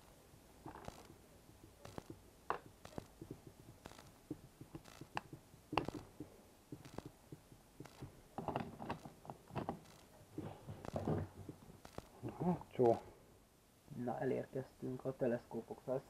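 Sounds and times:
small plastic parts clicking: 0:00.0 - 0:07.2, 0:07.8 - 0:10.1, 0:10.8 - 0:12.2.

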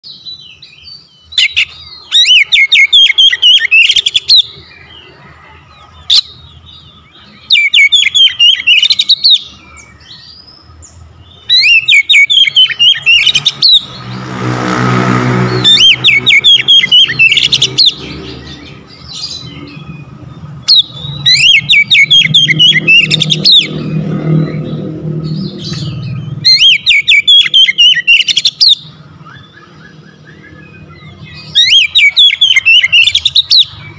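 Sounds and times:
bird singing whistled phrases: 0:07.2 - 0:10.3, 0:11.4 - 0:13.9, 0:20.7 - 0:23.7, 0:25.9 - 0:33.7
motor engine passing by: 0:12.6 - 0:27.7
low engine hum: 0:13.2 - 0:26.6.

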